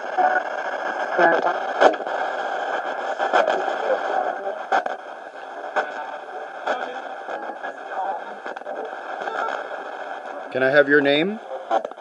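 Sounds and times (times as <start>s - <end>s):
radio static: 0.0s - 12.0s
snatches of radio station audio: 0.0s - 12.0s.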